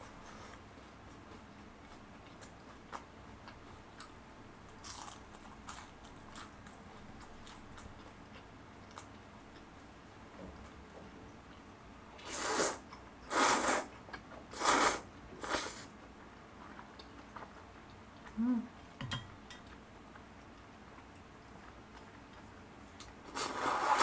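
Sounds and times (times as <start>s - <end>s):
person humming low: 18.4s - 18.7s
noodles slurped: 23.3s - 24.0s.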